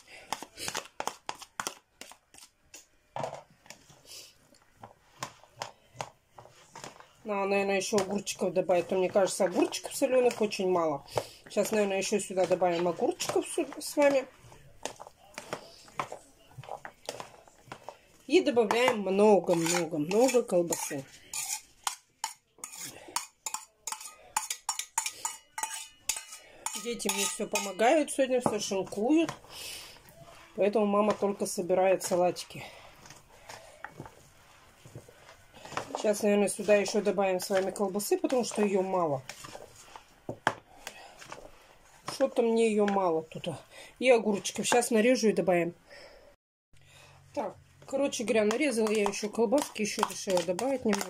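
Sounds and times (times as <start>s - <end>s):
hand mixing salad in plastic bowl: 0.0s - 45.2s, 47.4s - 51.0s
spoon scraping and clinking on plate: 19.4s - 28.2s.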